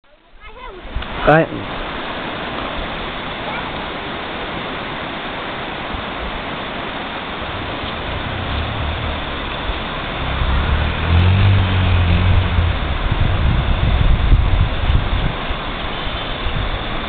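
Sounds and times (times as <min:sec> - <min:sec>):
river rushing over rocks: 0:00.4 - 0:17.0
low rumble: 0:07.0 - 0:17.0.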